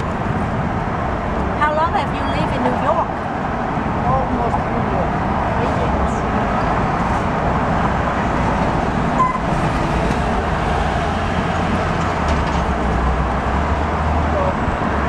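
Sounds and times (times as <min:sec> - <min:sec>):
bus and truck engine rumble: 0:00.0 - 0:15.0
city street traffic: 0:00.0 - 0:15.0
high beep: 0:09.2 - 0:09.5.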